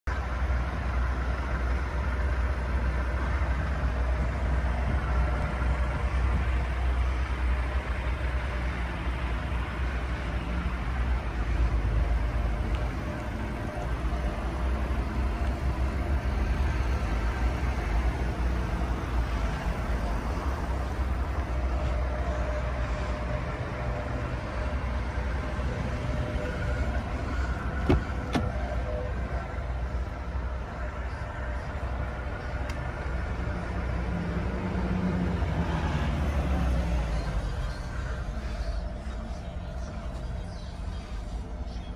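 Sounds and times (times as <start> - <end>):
traffic rumble: 0.0 - 41.9
car door clicks: 27.8 - 28.6.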